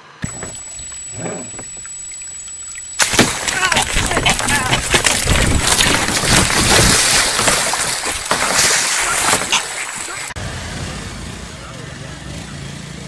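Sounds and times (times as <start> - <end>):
water splashing around kayak: 0.2 - 10.4
wind on microphone: 3.9 - 8.2.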